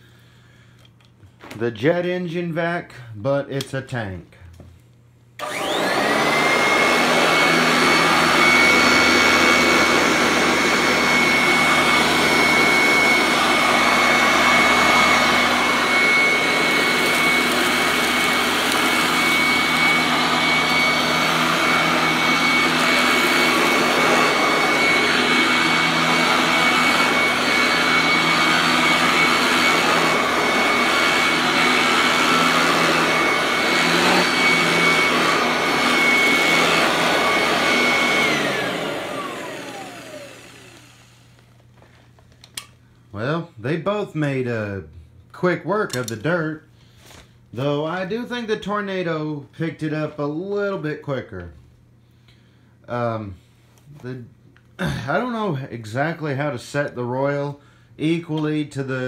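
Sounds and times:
vacuum cleaner motor whine: 0:05.4 - 0:42.7.

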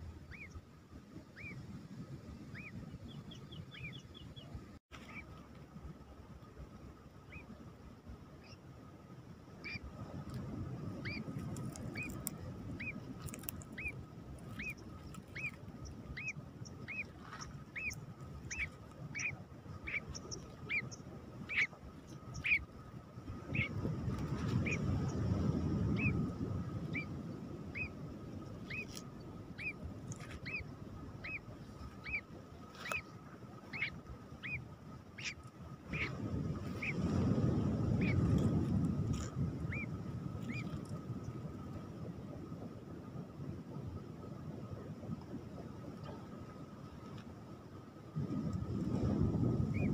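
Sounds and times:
low rumbling noise: 0:00.0 - 0:49.9
bird chick peeping: 0:00.2 - 0:00.6, 0:11.0 - 0:22.7, 0:26.9 - 0:28.0, 0:28.6 - 0:33.1, 0:33.7 - 0:34.6, 0:35.2 - 0:37.0.

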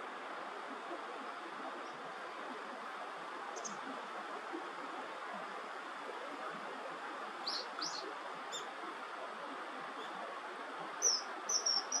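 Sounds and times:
background hiss: 0:00.0 - 0:12.0
bird chirps: 0:07.4 - 0:08.7, 0:11.0 - 0:12.0.

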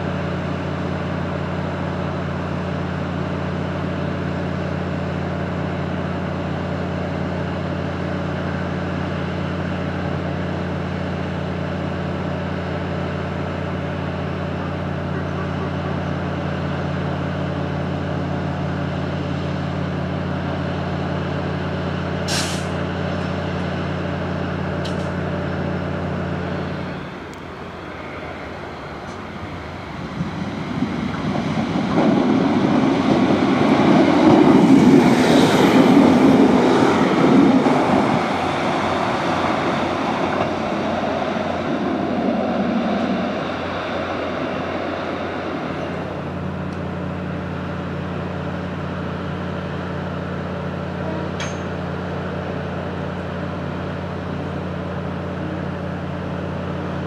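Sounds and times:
train engine idling hum: 0:00.0 - 0:57.0
train noise: 0:00.0 - 0:57.0
air hiss: 0:22.3 - 0:22.8.

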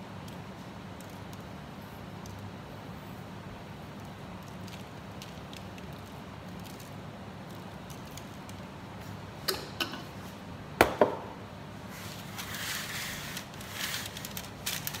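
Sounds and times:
steady low hum: 0:00.0 - 0:15.0
parchment paper crinkling: 0:04.0 - 0:08.7, 0:12.2 - 0:15.0.

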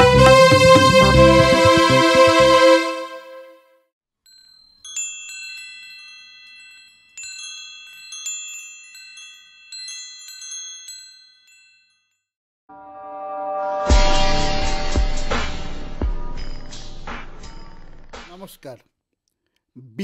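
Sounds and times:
wind chimes ringing: 0:04.3 - 0:12.3.

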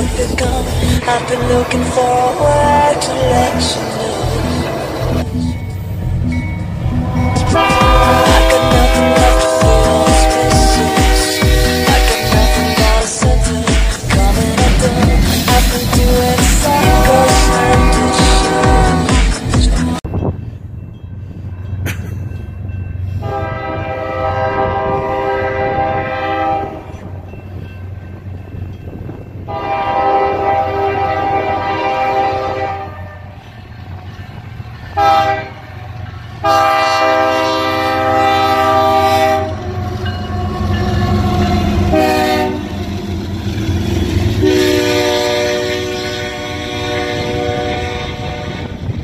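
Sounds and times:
low rumble of train: 0:00.0 - 0:49.0
locomotive air horn blasts: 0:07.1 - 0:13.2, 0:15.7 - 0:19.4, 0:23.2 - 0:27.1, 0:29.4 - 0:33.4, 0:35.0 - 0:35.7, 0:36.4 - 0:42.9, 0:44.4 - 0:49.0.

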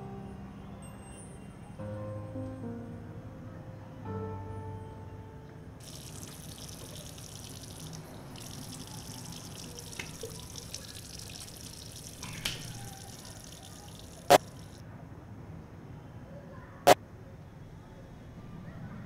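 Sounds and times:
water trickling and dripping: 0:05.8 - 0:14.8.

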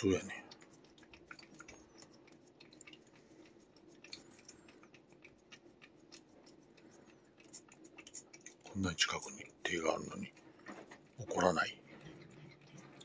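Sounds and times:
cat licking with wet clicks: 0:00.0 - 0:13.0
faint steady hum: 0:00.0 - 0:13.0.

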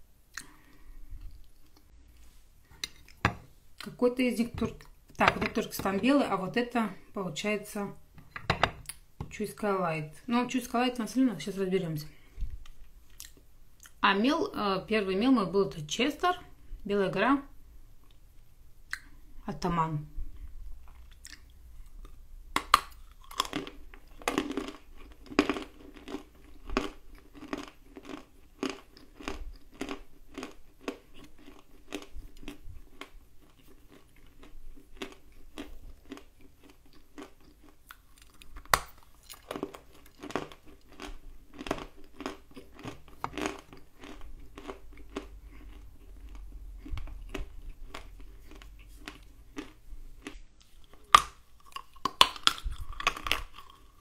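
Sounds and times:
chewing dry clay with crunching: 0:20.4 - 0:54.0.

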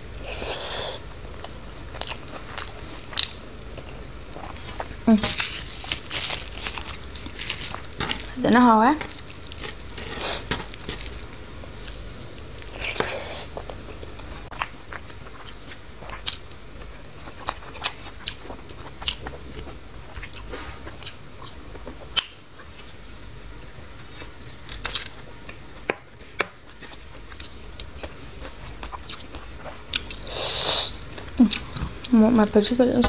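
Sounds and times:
chewing food: 0:01.3 - 0:23.0, 0:24.0 - 0:25.6, 0:26.2 - 0:32.2.

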